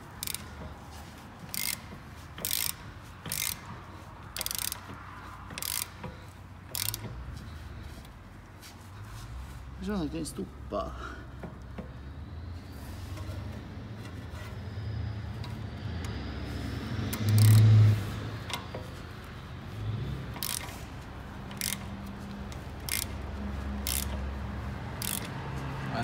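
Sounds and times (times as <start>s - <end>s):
sharp metallic clicks: 0.0s - 0.8s, 1.4s - 7.2s, 17.0s - 19.4s, 20.3s - 24.2s, 24.9s - 25.4s
wrench straining on bolt: 0.0s - 8.2s, 17.0s - 19.0s, 20.3s - 24.3s, 24.9s - 25.4s
low workshop hum: 0.0s - 26.0s.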